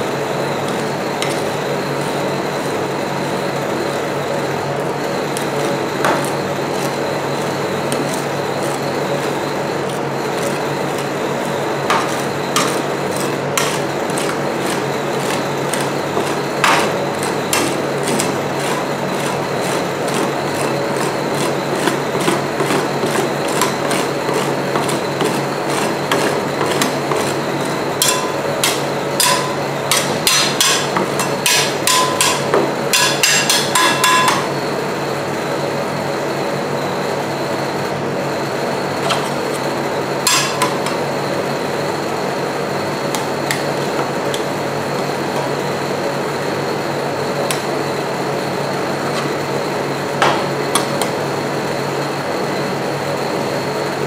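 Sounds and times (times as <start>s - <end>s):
machine humming: 0.0s - 35.8s
metal spatulas tapping and scraping: 11.9s - 16.9s, 28.0s - 34.5s, 40.3s - 41.0s.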